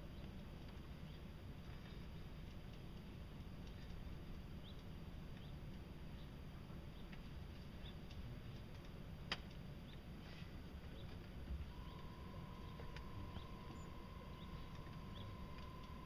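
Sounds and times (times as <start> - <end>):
low rumble: 0.0 - 16.0
faint high chirps: 11.7 - 16.0.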